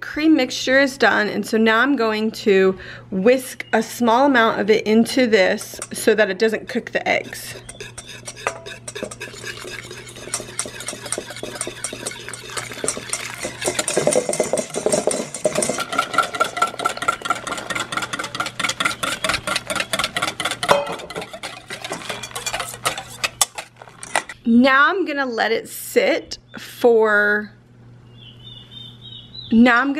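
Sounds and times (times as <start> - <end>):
whisk beating in metal bowl: 7.1 - 24.4.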